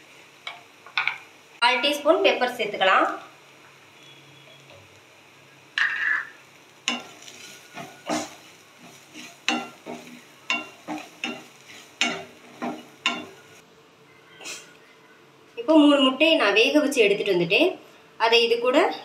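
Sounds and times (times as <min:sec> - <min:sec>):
spatula scraping a pan: 0:06.9 - 0:13.5.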